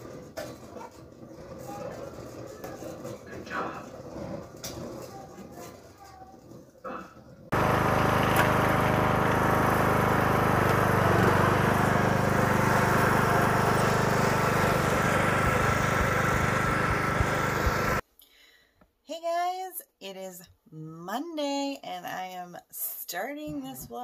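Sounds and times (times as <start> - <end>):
riding mower engine running: 7.5 - 18.0.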